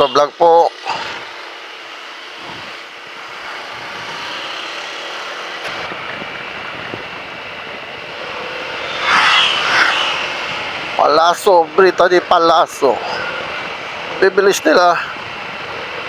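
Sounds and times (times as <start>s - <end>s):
motorcycle road noise: 0.0s - 16.0s
wind rushing on microphone: 5.7s - 11.8s.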